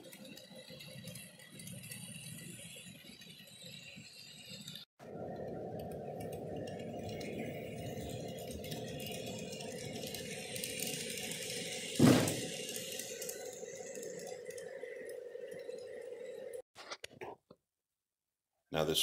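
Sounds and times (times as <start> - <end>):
model train wheels rattling: 0.0 - 4.8, 5.8 - 16.5
loud thump: 12.0 - 12.5.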